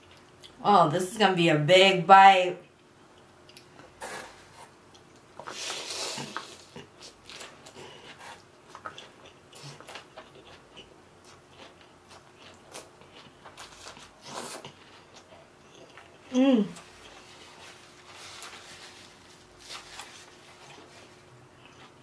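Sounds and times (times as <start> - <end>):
wet chewing and lip smacks: 6.2 - 17.2.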